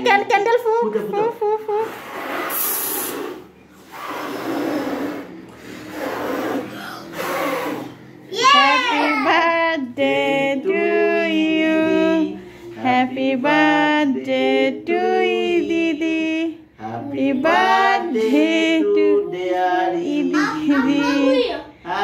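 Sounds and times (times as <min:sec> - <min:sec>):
women and children singing: 0:08.5 - 0:22.0.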